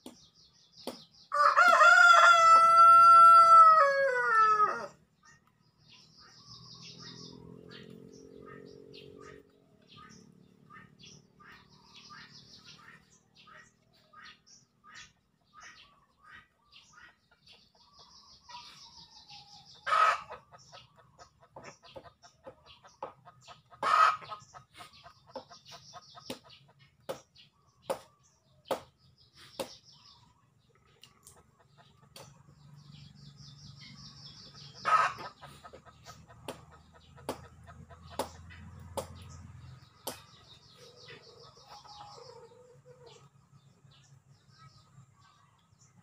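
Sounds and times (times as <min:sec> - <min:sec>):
chickens clucking: 0:00.0 - 0:46.0
loud chicken calls: 0:01.3 - 0:05.4, 0:18.4 - 0:22.4, 0:23.2 - 0:26.4, 0:34.6 - 0:38.4.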